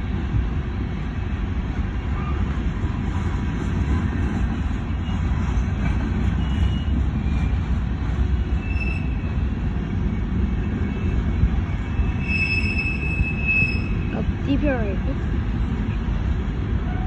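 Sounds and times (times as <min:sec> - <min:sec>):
train wheels clattering on rails: 0:02.0 - 0:10.1.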